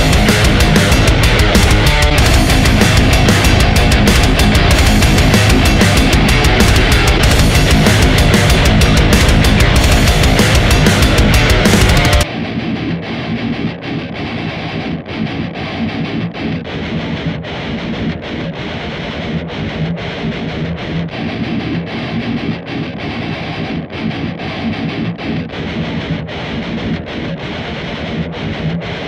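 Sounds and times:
distorted electric guitar riff: 0.0s - 29.0s.

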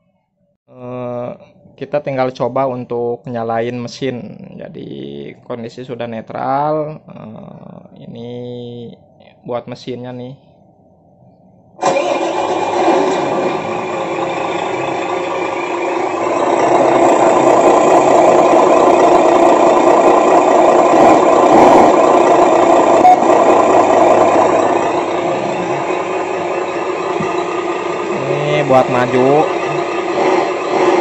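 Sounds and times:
truck engine sound from small speaker: 11.8s - 31.0s.

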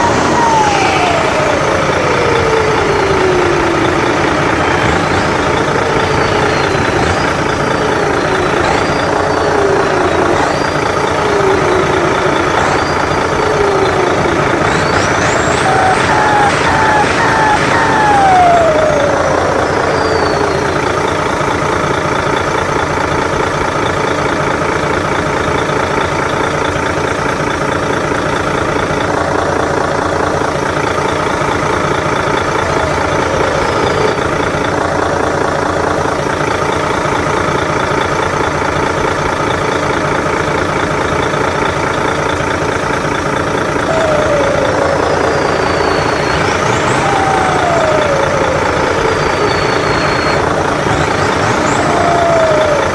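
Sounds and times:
turbo whistles falling in pitch: 0.0s - 21.6s, 32.3s - 35.8s, 43.8s - 52.9s
diesel truck engine idling: 0.0s - 52.9s.

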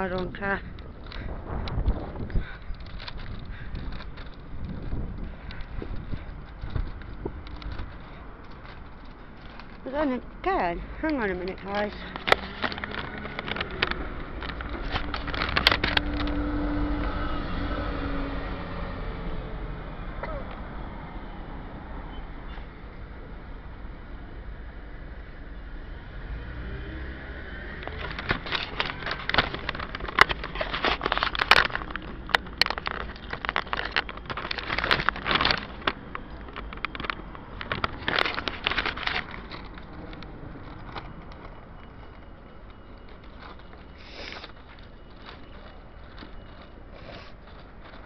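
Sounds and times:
street traffic rumbling: 0.0s - 48.0s
microphone crackling and rubbing: 1.0s - 9.8s.

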